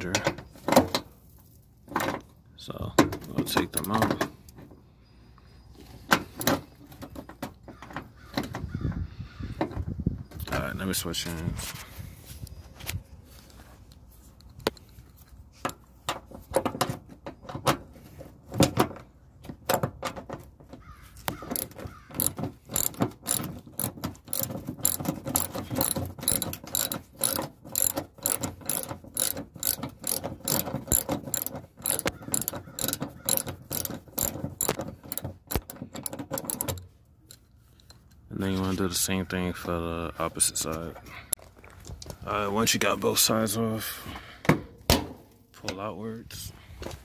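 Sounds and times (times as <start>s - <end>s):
ratchet wrench clicking: 21.3s - 38.0s.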